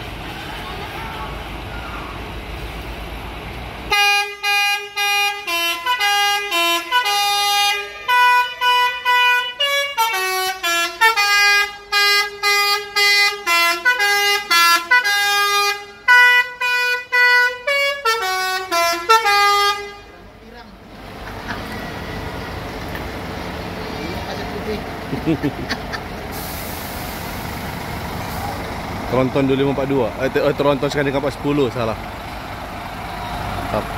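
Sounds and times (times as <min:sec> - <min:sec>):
bus engine running: 0:00.0 - 0:33.9
musical air horn melody: 0:03.9 - 0:20.2.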